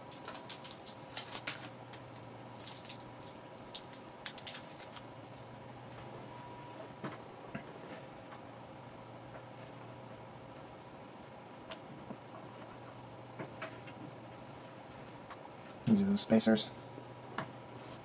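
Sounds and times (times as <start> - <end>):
plastic toy parts clicking: 2.6 - 5.0.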